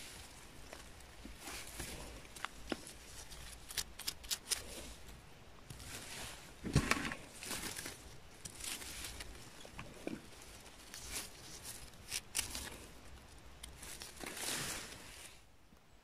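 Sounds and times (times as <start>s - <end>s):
knife trimming mushroom stems: 3.2s - 4.8s, 10.9s - 12.8s.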